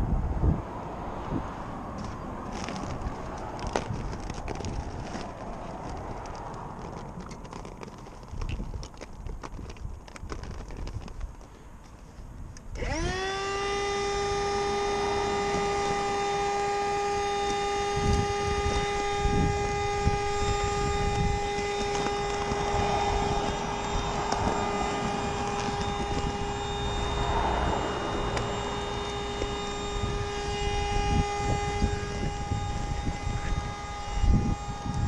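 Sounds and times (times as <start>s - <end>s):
electric air pump humming: 12.8s - 35.0s.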